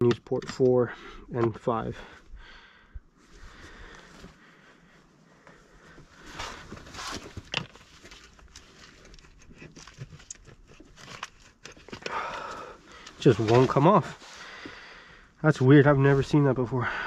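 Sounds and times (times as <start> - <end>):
gloves and cables rustling: 3.2 - 14.8.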